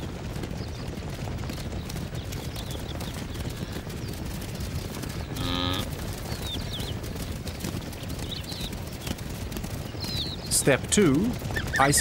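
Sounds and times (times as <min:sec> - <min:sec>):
hooves galloping: 0:00.0 - 0:12.0
wildebeest grunt: 0:05.4 - 0:06.0.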